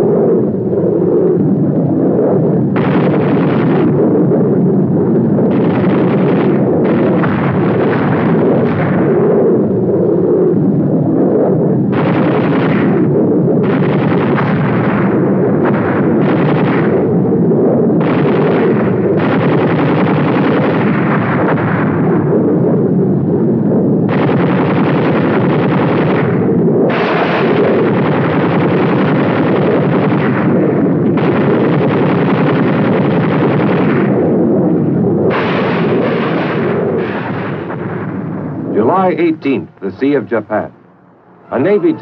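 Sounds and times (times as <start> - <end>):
steady rumble: 0.0 - 42.0
explosions: 1.3 - 42.0
gunfire: 2.7 - 4.5, 5.1 - 9.6, 11.9 - 22.4, 24.0 - 40.8.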